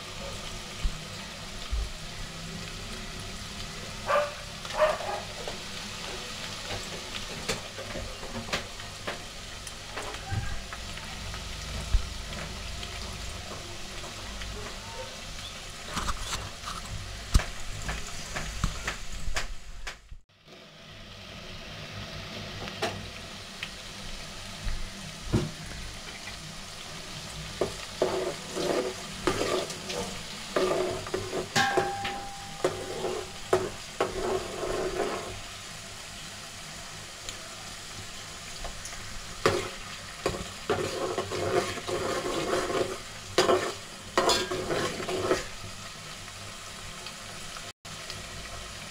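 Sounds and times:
onions sizzling in pot: 0.0 - 48.9
steel spoon scraping pot: 28.0 - 35.4, 40.3 - 45.5.

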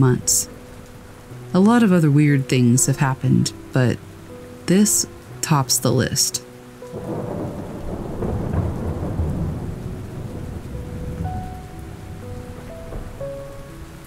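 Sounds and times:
steady rain: 0.0 - 14.0
rolling thunder: 6.9 - 13.9.

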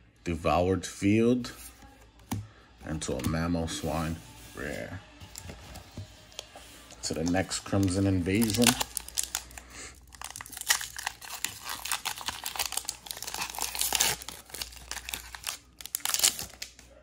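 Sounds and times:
foil wrapper crinkling and tearing: 7.2 - 16.9.

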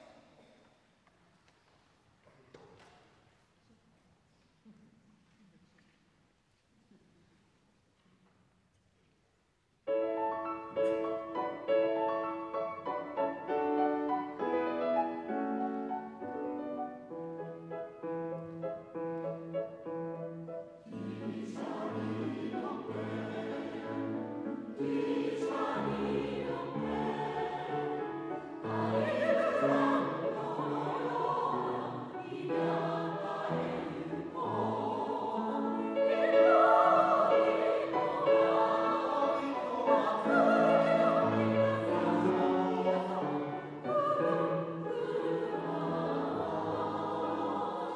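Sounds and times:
grand piano playing: 9.9 - 47.9
mixed choir singing: 20.7 - 47.9.

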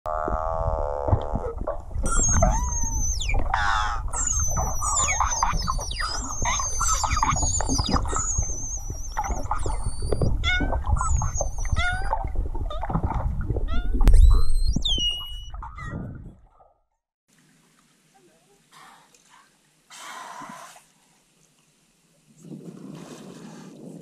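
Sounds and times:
whale whistles: 2.0 - 12.2, 13.7 - 15.9.

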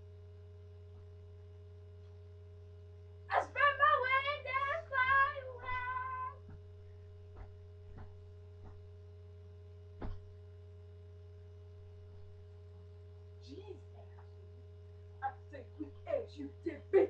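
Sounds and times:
low electrical hum: 0.0 - 17.0
high-pitched held vocal note: 3.3 - 6.4
soft thumps: 10.0 - 10.4.

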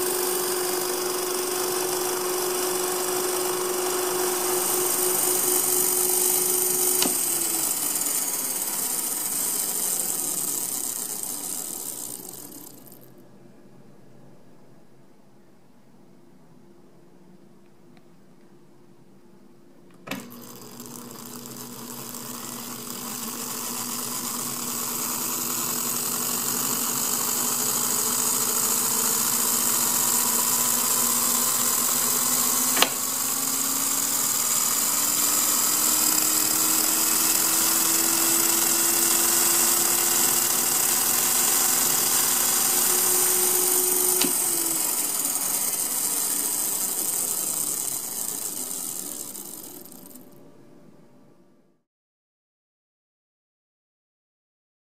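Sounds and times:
electric motor whine and gear buzz: 0.0 - 13.1, 20.0 - 50.4
sharp click: 32.7 - 33.1, 44.0 - 44.4.

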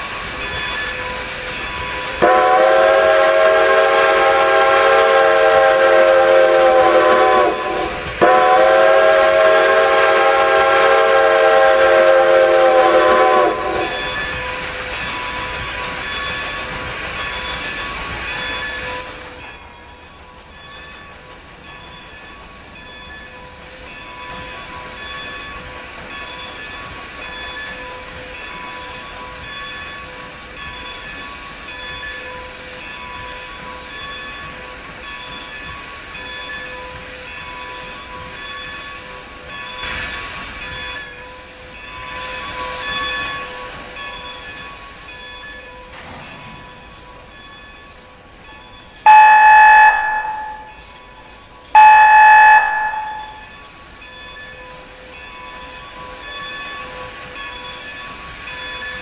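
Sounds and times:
steam whistle blast: 2.2 - 14.0, 49.0 - 50.8, 51.7 - 53.5.

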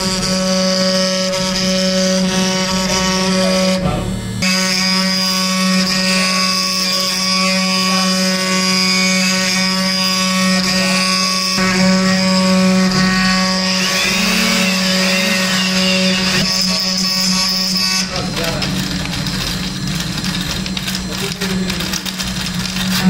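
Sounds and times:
cutter carving wood: 0.0 - 23.0
spindle motor whine: 0.0 - 23.0.

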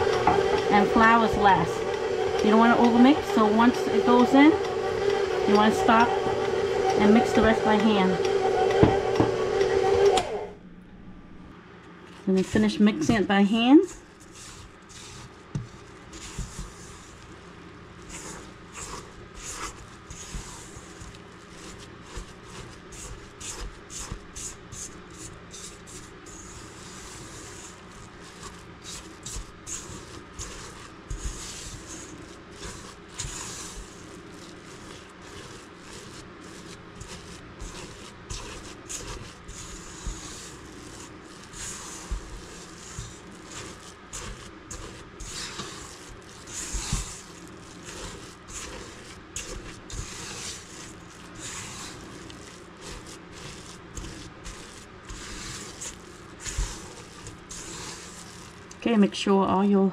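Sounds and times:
spatula scraping dough in metal bowl: 0.0 - 10.2, 12.2 - 59.1.

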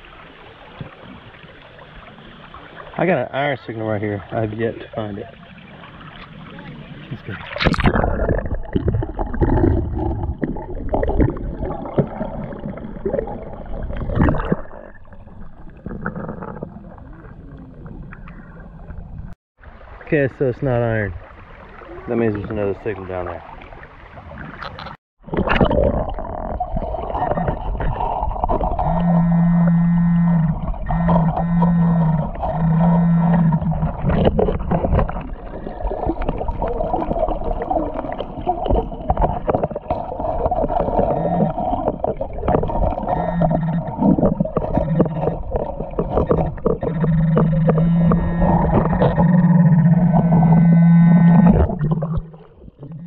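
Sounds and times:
muffled underwater creek: 0.0 - 53.0
metal detector buzzing tone: 28.8 - 34.0, 41.0 - 41.7, 42.7 - 45.5, 46.5 - 52.3.

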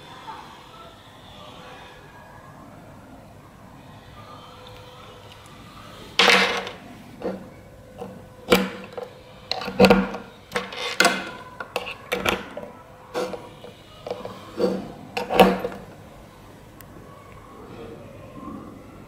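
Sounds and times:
plugs clicking and knocking on table: 6.2 - 16.0.

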